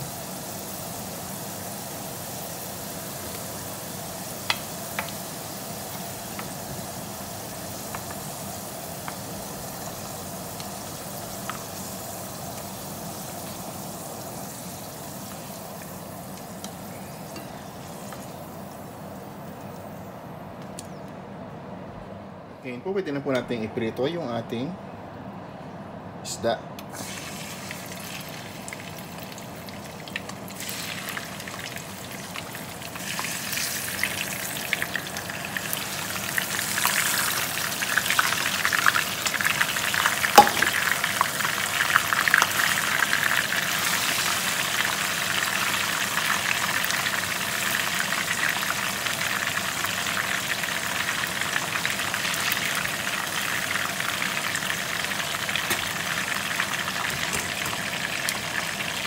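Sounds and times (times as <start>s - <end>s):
fish sizzling in hot oil: 0.0s - 19.6s, 26.9s - 59.0s
sharp oil pop: 40.4s - 40.8s.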